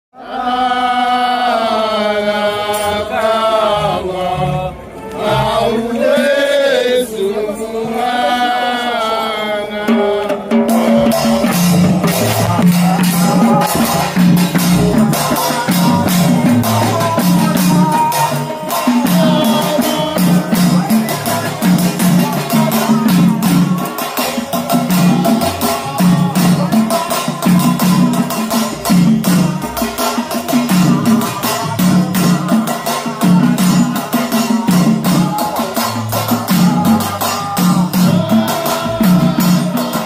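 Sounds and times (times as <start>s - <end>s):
voices chanting: 0.2s - 40.0s
big drum beating: 9.9s - 40.0s
frame drums beating: 9.9s - 40.0s.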